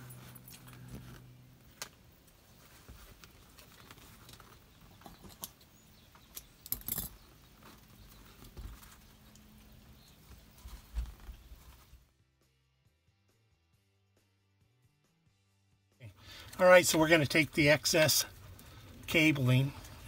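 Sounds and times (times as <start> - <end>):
light clicks and rustles: 0.0 - 12.0.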